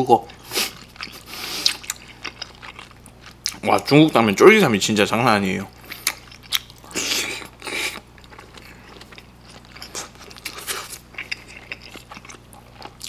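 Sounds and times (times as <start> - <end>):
wet chewing: 0.3 - 3.9, 5.7 - 13.0.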